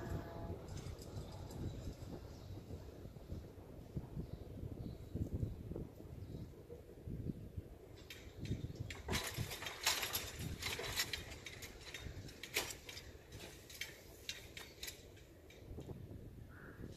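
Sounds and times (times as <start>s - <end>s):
low outdoor rumble: 0.0s - 16.9s
barrier booms clicking and rattling: 8.0s - 16.0s.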